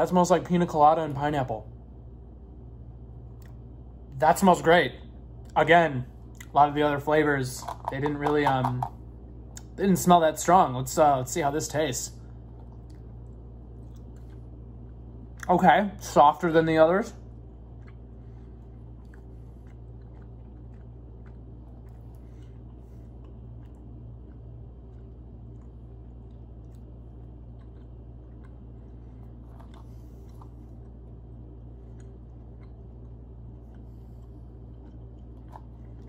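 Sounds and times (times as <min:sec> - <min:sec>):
steady low hum: 0:00.0 - 0:36.0
person chewing gummy candy: 0:12.1 - 0:15.5, 0:17.2 - 0:36.0.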